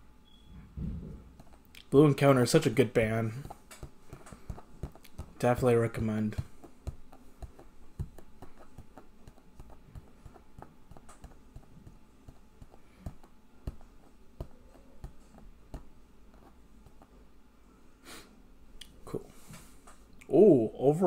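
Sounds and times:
low room hum: 0:00.0 - 0:21.0
small clicks and light taps: 0:06.3 - 0:17.1.

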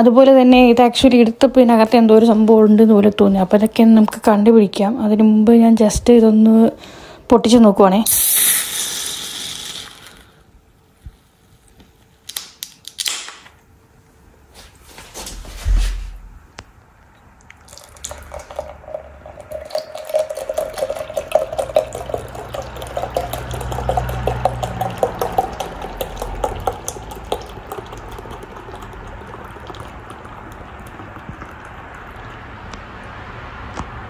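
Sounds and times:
beer glugging into glass: 0:17.4 - 0:32.7.

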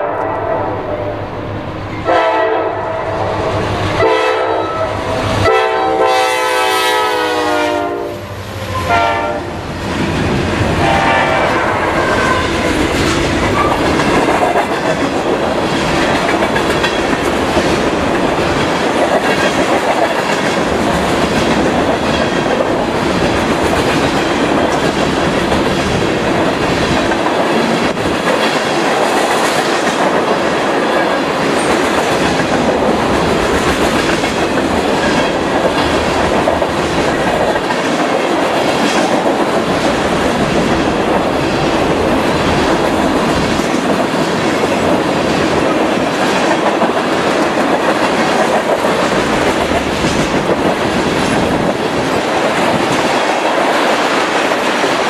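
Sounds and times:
train wheels rumbling on rail: 0:00.0 - 0:55.0
wheels clacking over rail joints: 0:12.1 - 0:55.0.

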